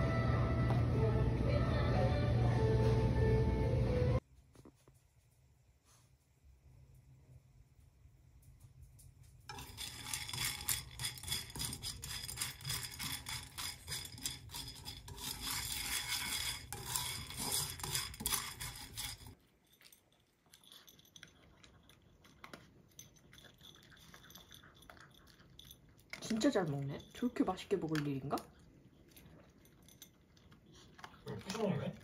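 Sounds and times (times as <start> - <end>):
kibble rattling in a frying pan: 9.4 - 21.5
dog eating from a ceramic bowl: 9.5 - 32.0.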